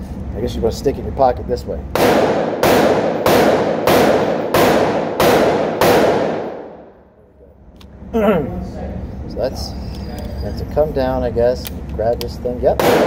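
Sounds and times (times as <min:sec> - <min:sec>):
gunshots with long echo: 0:01.9 - 0:07.0, 0:12.7 - 0:13.0.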